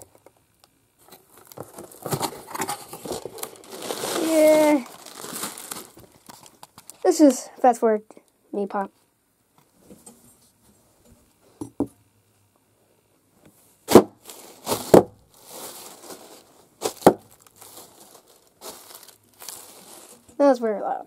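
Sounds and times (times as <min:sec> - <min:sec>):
plastic crinkling: 0:01.0 - 0:07.4, 0:13.9 - 0:20.6
air pillows popping: 0:13.9 - 0:17.8.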